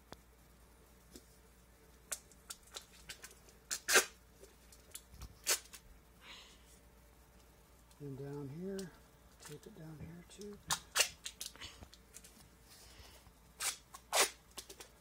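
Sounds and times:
duct tape ripping: 0:02.1 - 0:04.2, 0:04.9 - 0:05.8, 0:10.4 - 0:11.5, 0:13.6 - 0:14.9.

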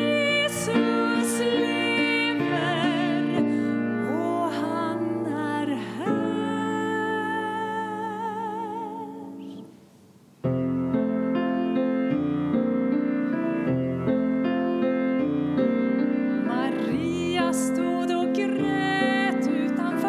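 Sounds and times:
woman singing with vibrato: 0:00.0 - 0:09.6, 0:16.4 - 0:20.0
grand piano accompaniment: 0:00.0 - 0:09.7, 0:10.4 - 0:20.0.

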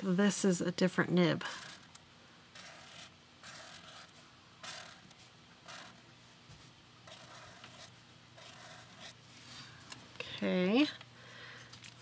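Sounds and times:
marker scratching on paper: 0:01.4 - 0:01.9, 0:02.6 - 0:06.0, 0:07.0 - 0:09.2.

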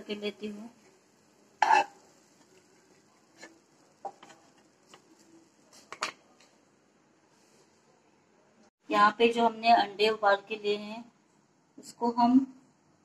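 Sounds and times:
wooden spatula knocking and scraping: 0:01.6 - 0:02.7, 0:03.3 - 0:06.2.

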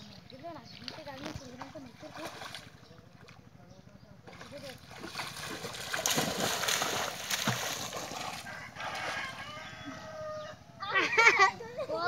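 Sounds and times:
water splashing: 0:00.0 - 0:03.5, 0:04.2 - 0:09.4.

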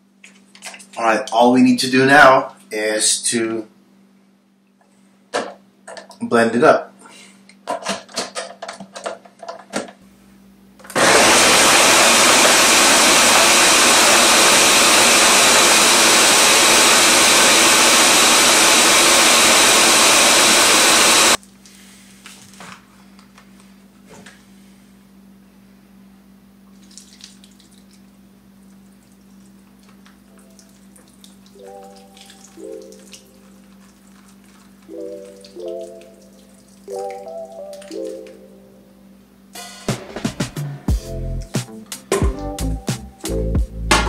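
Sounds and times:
blender running at full speed: 0:10.9 - 0:21.4.

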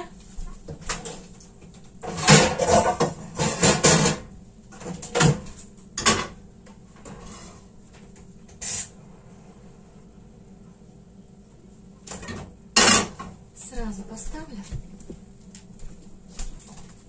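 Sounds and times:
kitchenware scraping and clattering: 0:02.0 - 0:06.4, 0:07.0 - 0:07.7, 0:12.1 - 0:13.4.

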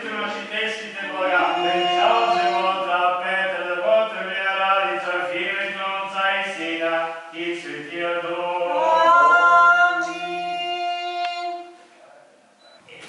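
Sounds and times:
several voices chanting: 0:01.0 - 0:03.1, 0:08.3 - 0:11.0.

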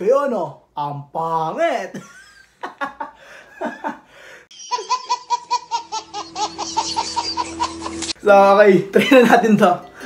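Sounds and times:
baby laughing: 0:04.5 - 0:08.2.

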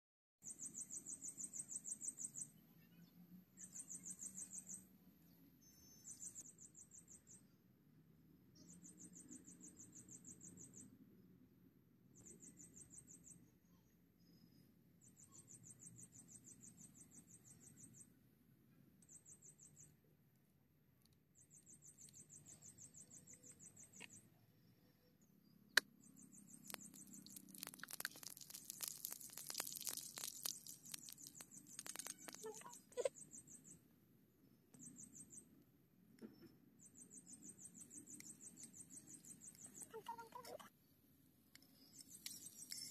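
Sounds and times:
high-pitched chirping trills: 0:26.0 - 0:33.8.

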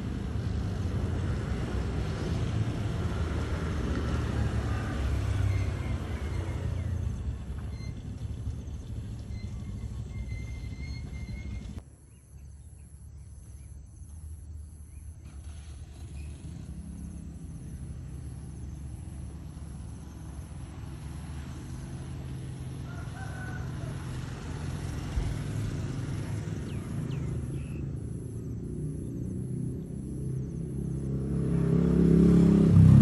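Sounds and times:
rooster crowing: 0:22.7 - 0:24.8.

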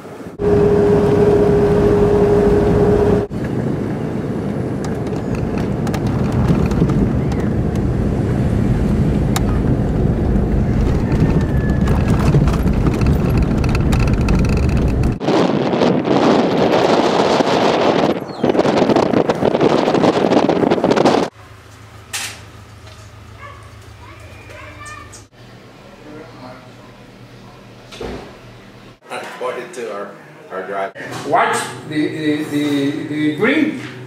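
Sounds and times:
steady tone: 0:00.3 - 0:03.4
car engine and tyre rumble: 0:00.4 - 0:15.3
wind noise on microphone: 0:00.4 - 0:21.3.

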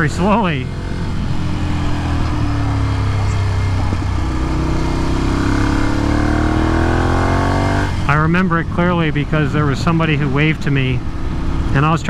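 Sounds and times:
motorcycle engine accelerating: 0:00.0 - 0:12.0
wind noise: 0:00.8 - 0:10.0.

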